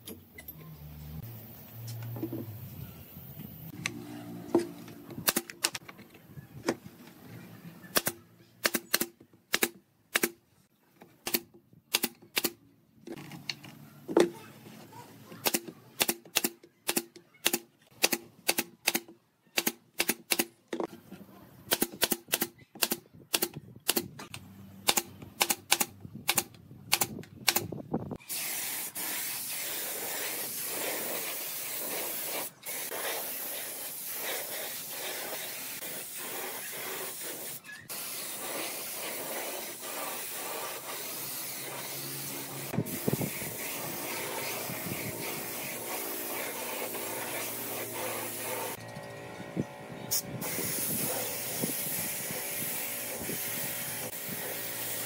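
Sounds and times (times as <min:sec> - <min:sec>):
nail gun firing into wood: 0:05.2 - 0:05.8, 0:07.9 - 0:10.4, 0:11.2 - 0:12.6, 0:15.4 - 0:20.5, 0:21.7 - 0:24.1, 0:24.8 - 0:27.8
paint spray gun hissing: 0:28.2 - 0:48.8, 0:50.1 - 0:55.0.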